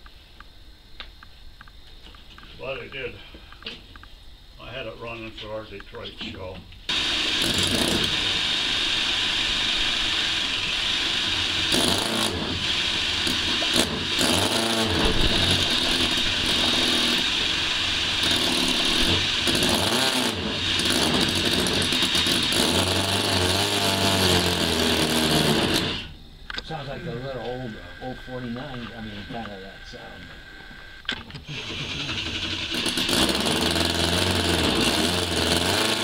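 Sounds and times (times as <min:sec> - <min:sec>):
model engine running: 0:06.9 - 0:30.2, 0:31.4 - 0:36.0.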